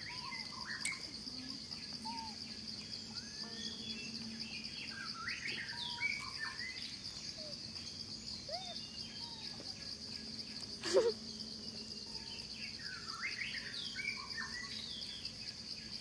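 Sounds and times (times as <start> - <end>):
chirping and squeaking calls: 0.0 - 4.2, 5.3 - 11.2
pulsing high insect drone: 0.0 - 16.0.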